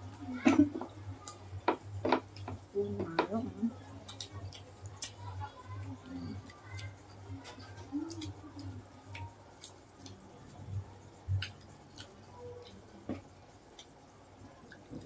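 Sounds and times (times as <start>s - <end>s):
chewing clicks and smacks: 4.0s - 5.3s, 6.4s - 15.0s.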